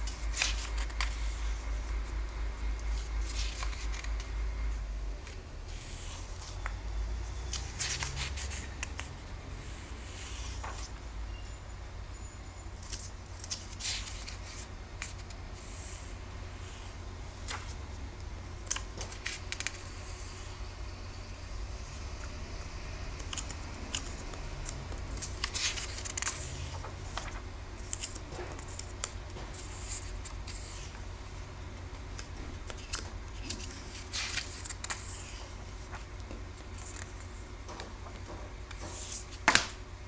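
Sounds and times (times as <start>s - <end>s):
paper pages turning: 0.0s - 2.0s, 2.8s - 4.4s, 7.4s - 11.0s, 12.8s - 16.1s, 16.7s - 20.5s, 23.0s - 39.7s.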